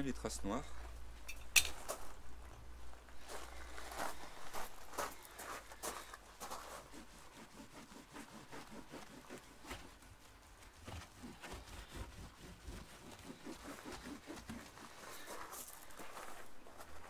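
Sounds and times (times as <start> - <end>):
sponge scrubbing a door: 3.6 - 15.9.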